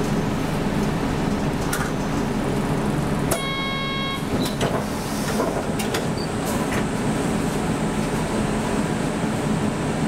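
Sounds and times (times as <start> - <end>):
bus running: 0.0 - 10.0
short electronic beep: 3.3 - 4.5.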